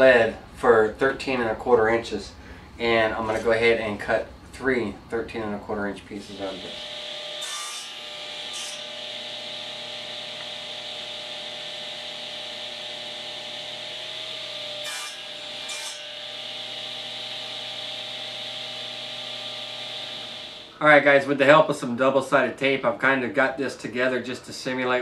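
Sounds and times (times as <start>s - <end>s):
table saw running: 6.3s - 20.8s
saw blade cutting wood: 6.4s - 20.7s.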